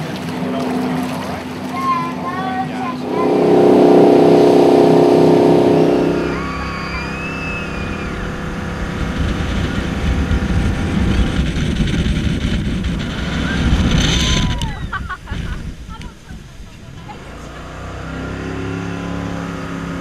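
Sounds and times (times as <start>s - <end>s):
jet boat engine running: 0.0s - 20.0s
wind and water rushing over microphone: 0.0s - 20.0s.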